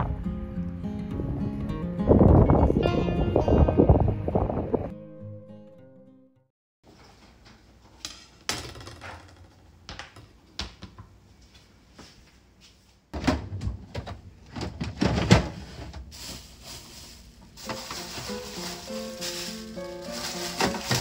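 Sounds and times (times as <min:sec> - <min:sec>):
refrigerator drawer sliding open: 0:13.2 - 0:16.2, 0:20.0 - 0:21.0
kitchen items clicking and knocking: 0:13.2 - 0:21.0
bagged food being handled: 0:15.6 - 0:21.0.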